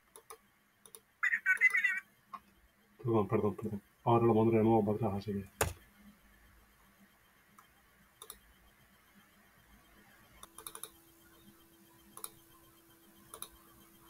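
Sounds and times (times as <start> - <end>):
faint computer clicks: 0.0 - 2.6, 7.5 - 8.5, 10.4 - 11.5, 12.1 - 12.4, 13.3 - 13.8
faint steady hum: 0.0 - 14.0.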